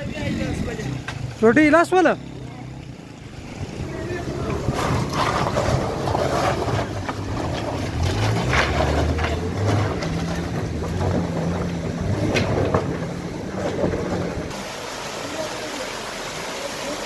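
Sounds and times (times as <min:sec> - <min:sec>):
motorcycle engine running: 0:00.0 - 0:07.3
wind rushing over microphone: 0:03.3 - 0:07.6.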